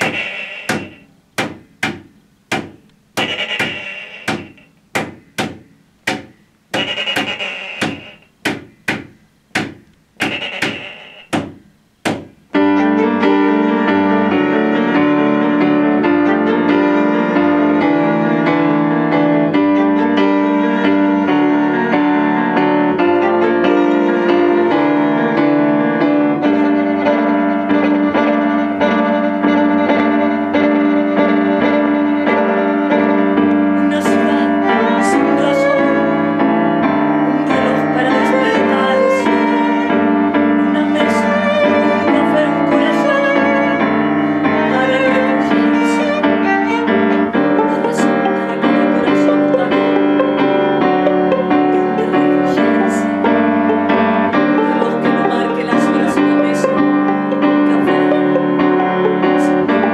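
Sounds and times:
piano and violin playing: 0:00.0 - 0:01.1, 0:03.2 - 0:04.7, 0:06.8 - 0:08.2, 0:10.2 - 0:11.3, 0:12.5 - 0:59.9
sharp percussive hits: 0:00.0 - 0:12.4.

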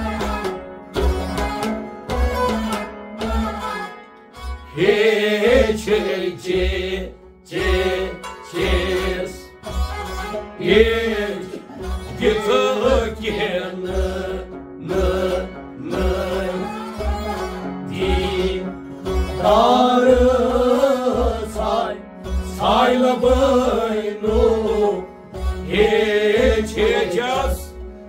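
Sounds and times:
bowed string instrument: 0:00.0 - 0:28.0
man singing: 0:10.6 - 0:16.9, 0:17.9 - 0:18.8, 0:19.4 - 0:22.0, 0:25.7 - 0:27.8.

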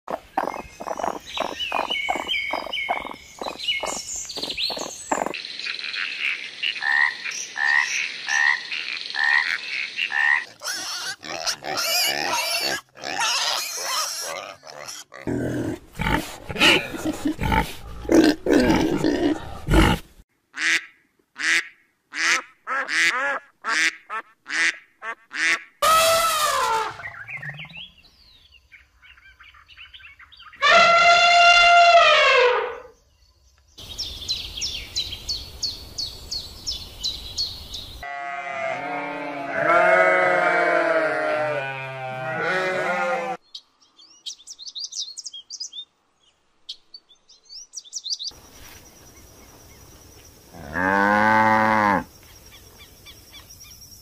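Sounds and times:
short evenly spaced calls: 0:00.1 - 0:11.6
raccoon chattering: 0:00.2 - 0:05.4
pig grunting: 0:04.7 - 0:05.4, 0:10.5 - 0:20.1.

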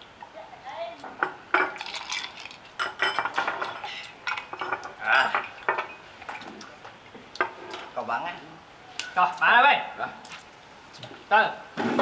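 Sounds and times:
glasses and tableware clinking: 0:01.2 - 0:06.5.

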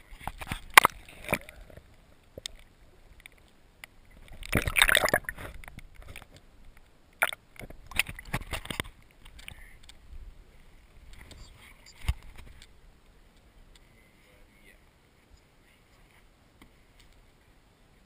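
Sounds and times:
water sloshing against hull: 0:00.0 - 0:09.9
rush of water: 0:00.0 - 0:13.3.

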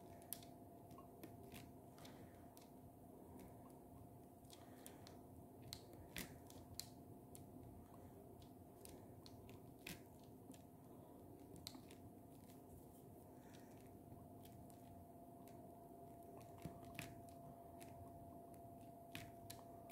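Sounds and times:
faint steady hum: 0:00.0 - 0:19.9.

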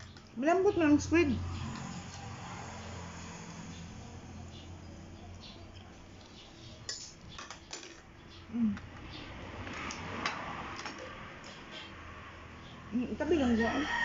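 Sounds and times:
fork clinking on plates: 0:06.8 - 0:08.1.

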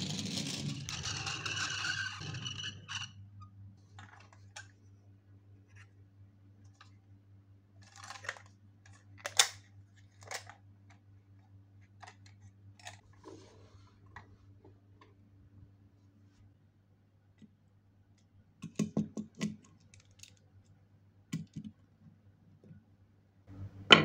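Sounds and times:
plastic toy parts clicking and rattling: 0:07.8 - 0:10.6, 0:12.0 - 0:13.0, 0:19.4 - 0:20.4.

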